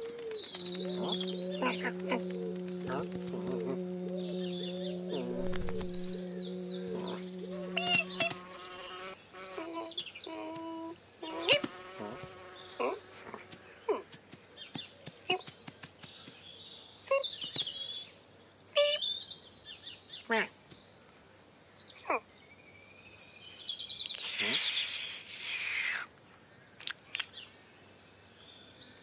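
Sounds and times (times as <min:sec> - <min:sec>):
bee buzzing: 0:00.0 - 0:13.7.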